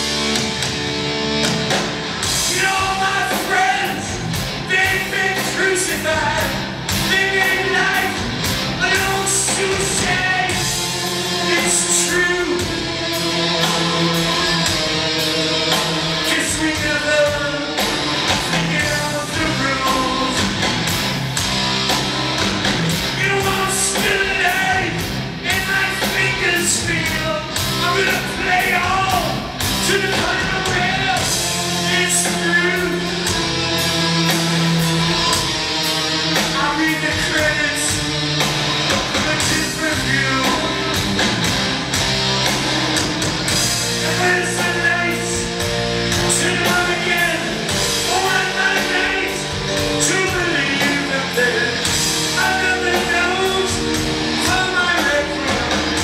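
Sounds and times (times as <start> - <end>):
heavy metal band playing: 0.0 - 56.0
man singing: 2.4 - 17.8, 18.4 - 20.6, 23.1 - 33.3, 36.5 - 38.1, 39.2 - 41.0, 44.0 - 45.6, 46.2 - 56.0.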